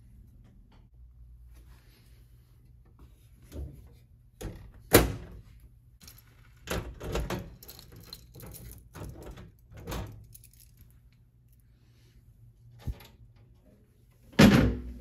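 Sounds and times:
key turning in lock: 7.0s - 10.8s
keys jangling: 7.4s - 11.0s.

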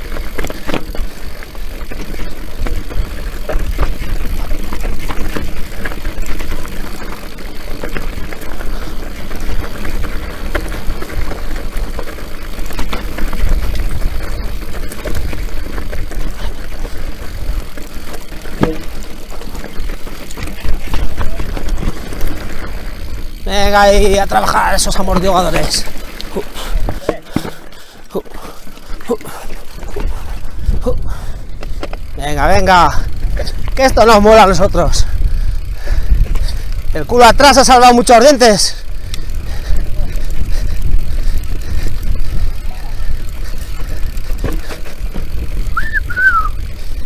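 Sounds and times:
tyres crunching over stones: 0.0s - 30.7s, 31.4s - 32.5s
bike rattling: 0.0s - 47.0s.

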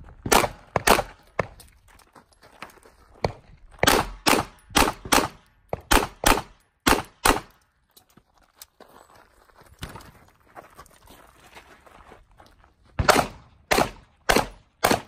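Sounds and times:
pistol shots: 0.3s - 1.2s, 3.8s - 7.6s, 13.0s - 15.0s.

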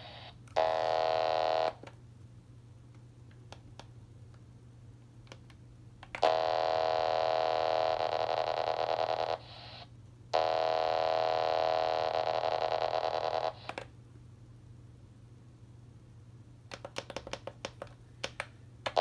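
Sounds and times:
radio static hiss: 0.0s - 0.4s, 7.2s - 9.9s
buzzing radio data tone: 6.2s - 13.7s.

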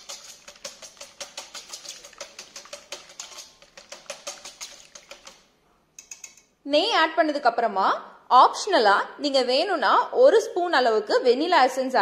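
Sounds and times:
whisk clicking in steel bowl: 0.0s - 6.4s.

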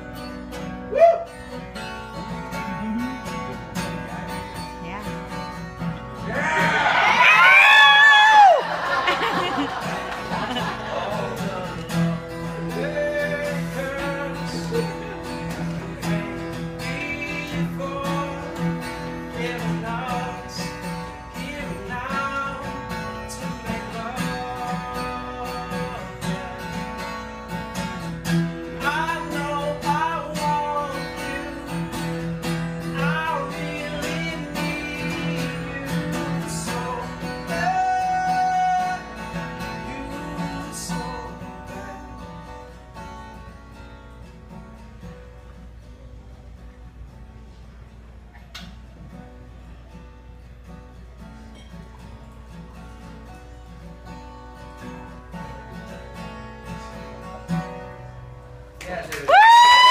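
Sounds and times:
strummed acoustic guitar: 0.0s - 59.2s
man singing: 10.6s - 27.0s, 28.7s - 42.8s.

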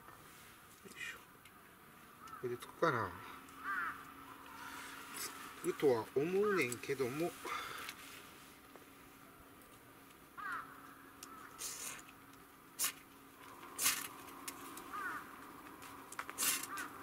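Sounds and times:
bird calling: 2.1s - 7.9s, 10.4s - 12.1s, 12.8s - 17.0s
fire steel scraping: 12.8s - 15.0s, 15.8s - 17.0s.

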